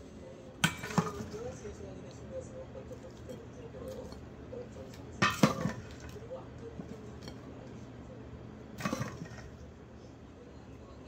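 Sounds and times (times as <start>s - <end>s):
dishware clattering: 0.6s - 1.7s, 2.9s - 7.5s, 8.8s - 9.6s.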